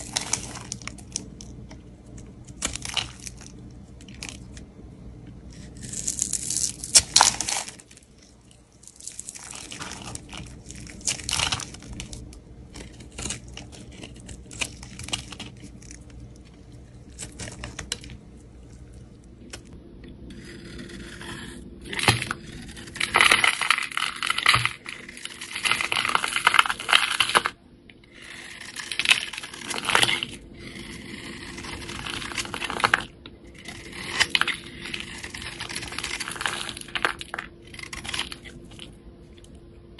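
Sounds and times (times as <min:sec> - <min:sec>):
knife scraping soap: 0:20.3 - 0:23.4, 0:28.1 - 0:38.7.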